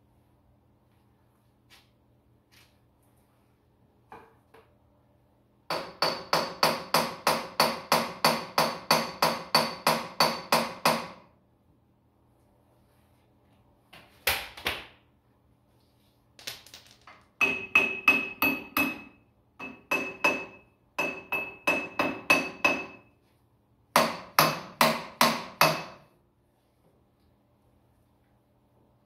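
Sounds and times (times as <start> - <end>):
hammer striking metal: 5.7 - 11.2, 17.4 - 23.1, 24.0 - 26.1.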